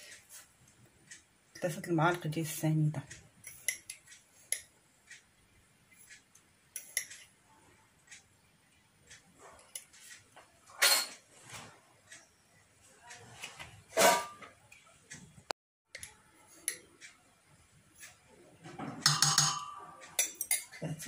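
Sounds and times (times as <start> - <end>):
kitchen clicks and knocks: 10.7 - 11.3, 13.6 - 14.6, 18.6 - 20.8.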